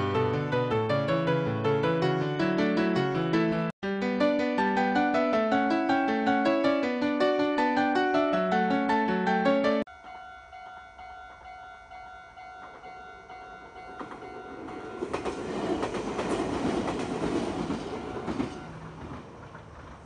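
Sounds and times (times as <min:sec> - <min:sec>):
level-crossing warning bell: 0:09.9 - 0:16.6, 0:17.6 - 0:19.0
train wheels clacking: 0:12.5 - 0:20.0.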